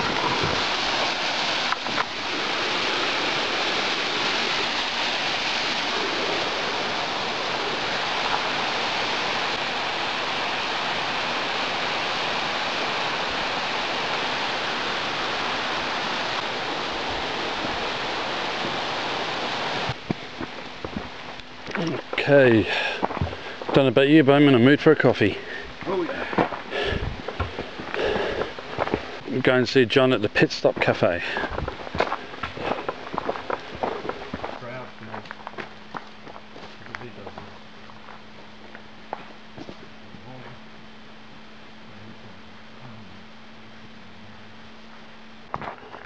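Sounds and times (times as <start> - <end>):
water rushing over rocks: 0.0 - 20.0.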